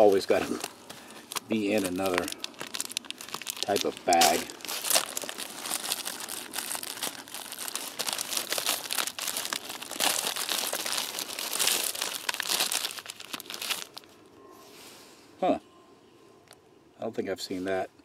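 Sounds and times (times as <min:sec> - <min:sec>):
plastic bag crinkling: 0:00.0 - 0:14.2.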